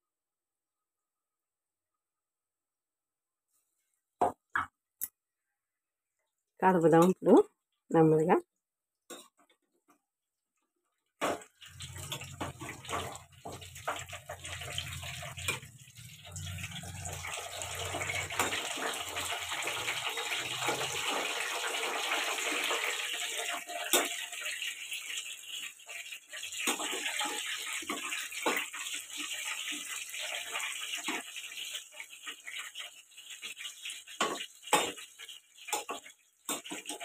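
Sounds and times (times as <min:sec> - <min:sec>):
fritters deep-frying in oil: 0:09.0 - 0:37.0.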